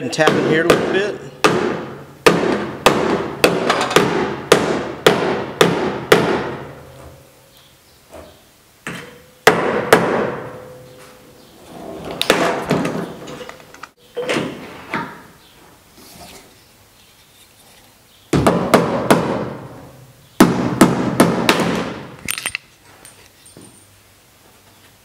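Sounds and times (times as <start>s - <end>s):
hammer striking steel panel: 0.1s - 6.9s, 9.4s - 11.0s, 20.4s - 22.1s.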